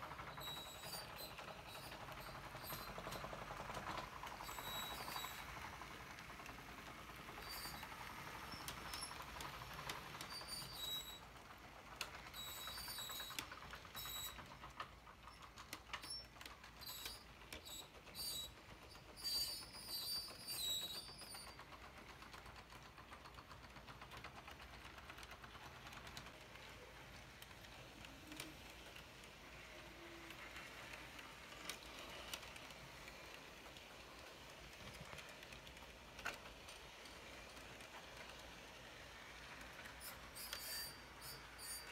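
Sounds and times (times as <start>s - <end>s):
train wheels clicking on track: 0.0s - 41.9s
wheel squeaks: 0.3s - 3.2s, 4.3s - 5.4s, 7.4s - 11.2s, 12.3s - 21.7s, 39.9s - 41.9s.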